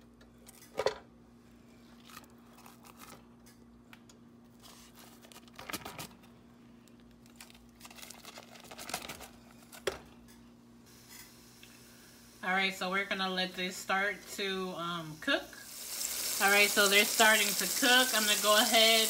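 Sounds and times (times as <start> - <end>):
faint hum: 0.0 - 19.0
paper crinkling and tearing: 7.2 - 9.3.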